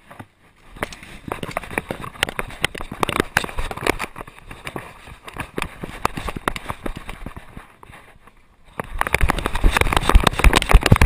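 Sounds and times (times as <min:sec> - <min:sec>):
dog paws pattering on paving: 0:00.1 - 0:11.0.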